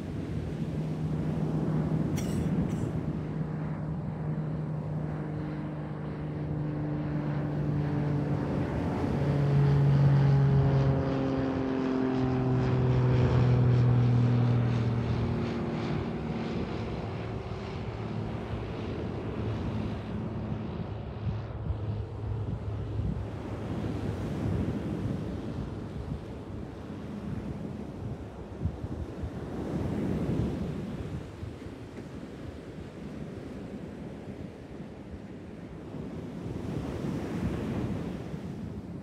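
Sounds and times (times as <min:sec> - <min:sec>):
propeller aircraft passing over: 0:00.0 - 0:39.0
wind noise on microphone: 0:20.6 - 0:33.8.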